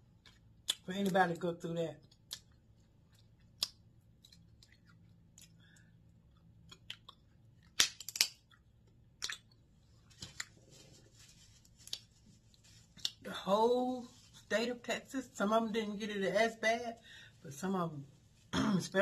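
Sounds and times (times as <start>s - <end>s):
chewing: 0.0s - 1.2s, 2.0s - 7.7s, 8.5s - 10.8s
crab shells cracking: 6.6s - 9.6s.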